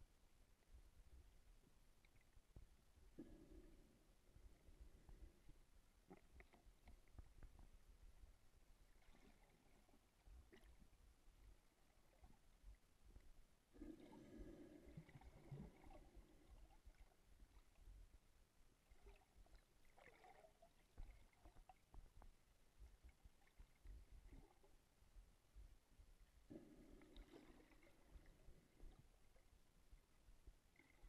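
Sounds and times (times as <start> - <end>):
faint low underwater rumbling: 0.0 - 31.0
muffled burst of water: 26.5 - 29.5.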